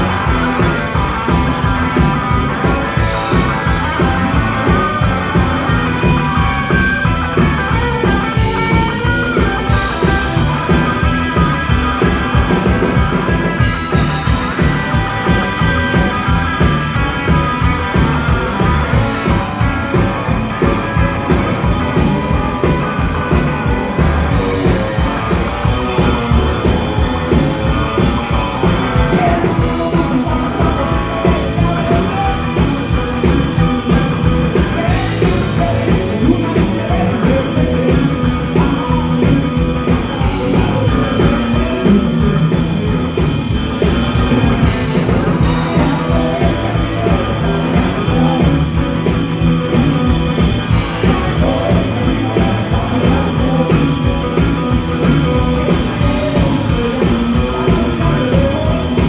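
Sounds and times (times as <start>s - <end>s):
rock band playing live: 0.0s - 59.0s.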